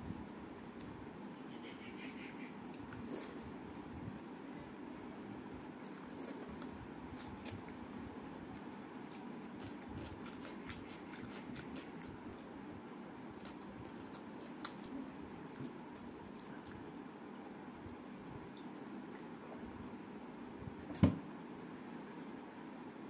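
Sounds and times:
steady low hum: 0:00.0 - 0:23.0
chewing: 0:05.8 - 0:12.4, 0:13.4 - 0:16.8
wet squishing of food: 0:05.8 - 0:12.5
mouth clicks and smacks: 0:14.1 - 0:16.8.

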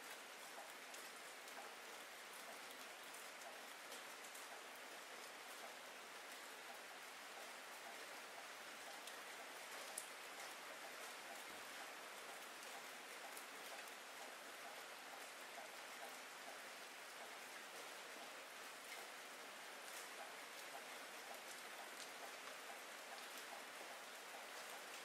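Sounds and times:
rain falling steadily: 0:00.0 - 0:25.0
single raindrops ticking: 0:07.8 - 0:11.5.

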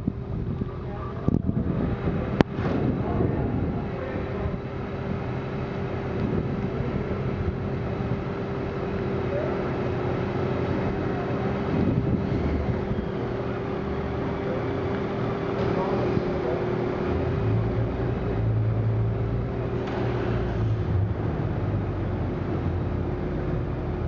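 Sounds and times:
wind on microphone: 0:00.0 - 0:05.3, 0:11.6 - 0:13.2
ferry engines droning: 0:00.0 - 0:24.0.

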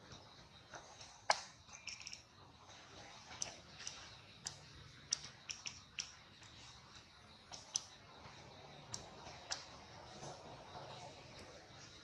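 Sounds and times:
chirp-like ticks: 0:03.3 - 0:12.0.

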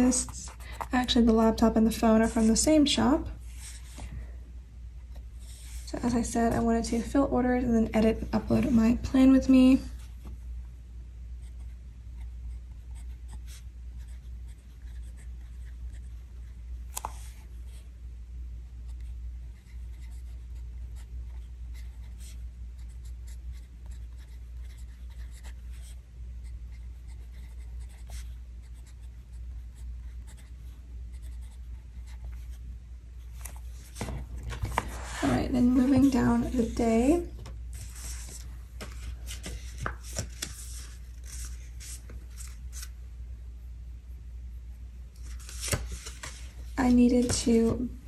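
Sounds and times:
low steady hum: 0:00.0 - 0:48.0
pen nib scratching paper: 0:18.9 - 0:32.6.

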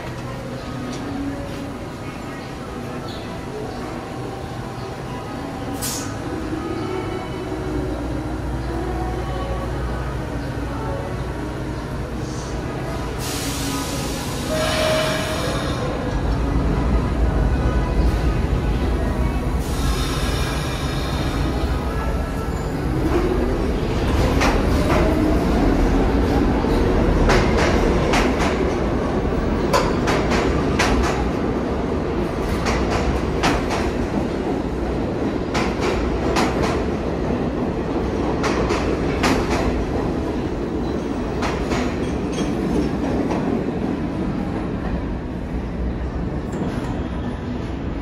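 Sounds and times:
subway train rumbling: 0:00.0 - 0:48.0.

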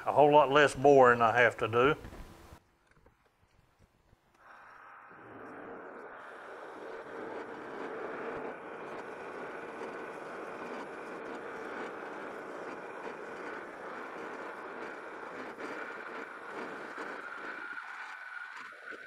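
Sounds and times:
lathe motor hum: 0:04.4 - 0:19.0
metal lathe drilling metal: 0:04.6 - 0:19.0.

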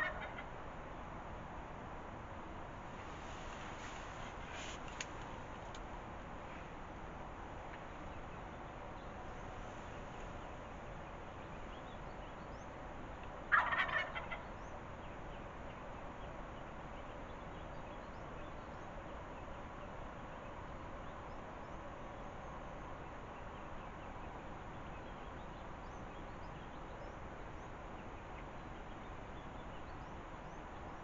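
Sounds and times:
turkey gobbling: 0:00.0 - 0:00.5, 0:13.5 - 0:14.4.

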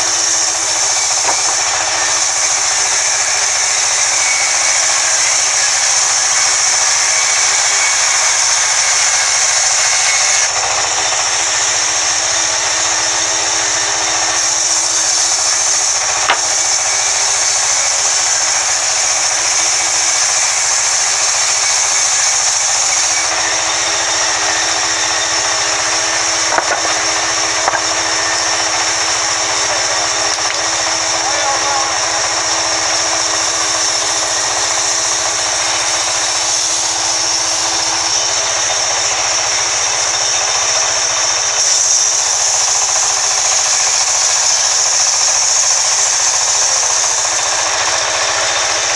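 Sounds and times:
band saw cutting wood: 0:00.0 - 0:48.9.

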